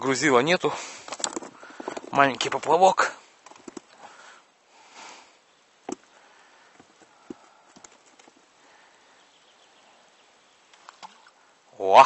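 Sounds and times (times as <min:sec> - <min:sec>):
soft hiss: 0:00.0 - 0:12.0
sharp little clicks and knocks: 0:01.0 - 0:02.8, 0:03.4 - 0:04.0.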